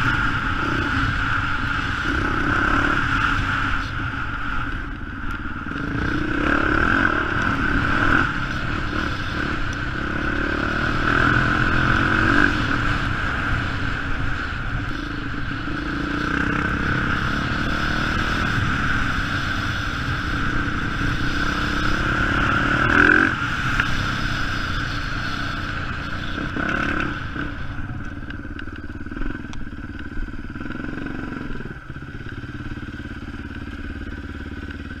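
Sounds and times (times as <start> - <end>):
dirt bike engine running: 0.0 - 35.0.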